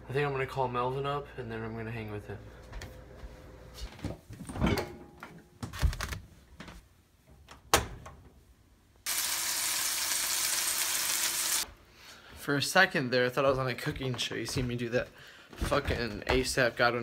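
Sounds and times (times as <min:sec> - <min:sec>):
patty sizzling in a frying pan: 0:09.1 - 0:11.6.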